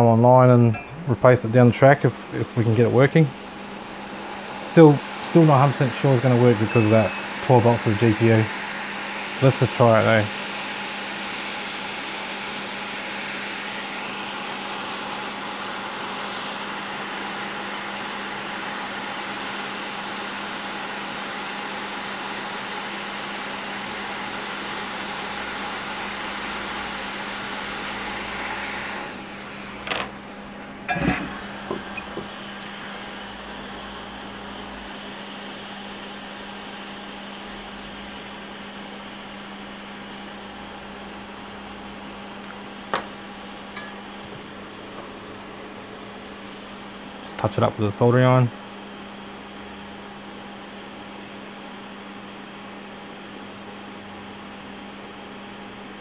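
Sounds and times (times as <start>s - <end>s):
steady low hum: 0.0s - 10.5s, 29.0s - 48.7s
hot air blower rushing: 0.0s - 49.0s.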